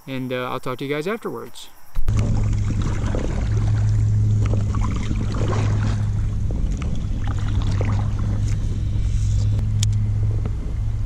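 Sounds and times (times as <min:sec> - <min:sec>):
water crackling and ticking: 0:02.0 - 0:10.6
small motor humming: 0:02.1 - 0:11.0.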